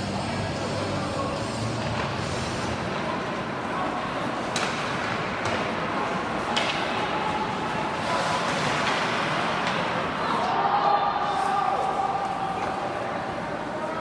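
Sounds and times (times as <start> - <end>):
arena noise: 0.0 - 14.0
sharp hockey clacks: 4.2 - 10.2.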